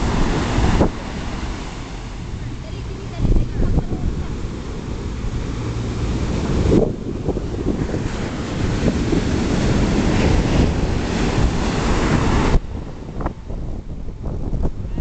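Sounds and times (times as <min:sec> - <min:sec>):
ocean surf breaking: 0:00.0 - 0:15.0
wind buffeting microphone: 0:00.0 - 0:15.0.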